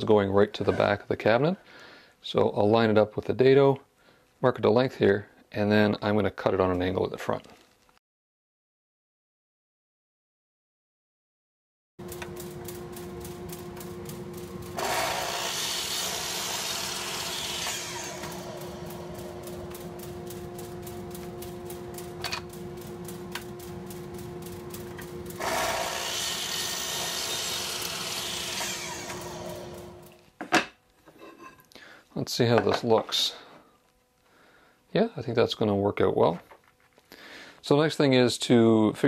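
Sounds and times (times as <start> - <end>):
miter saw motor running: 12.0 - 30.2
saw blade cutting wood: 14.8 - 19.7, 25.4 - 30.2.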